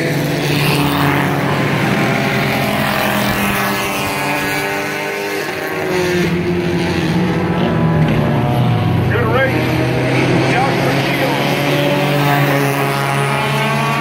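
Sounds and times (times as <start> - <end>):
race car engines passing: 0.0 - 14.0.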